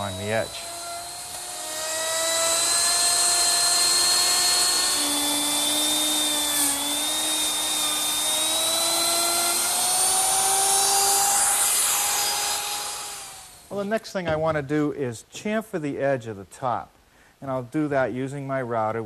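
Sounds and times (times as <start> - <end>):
router high-pitched whine: 0.0 - 13.9.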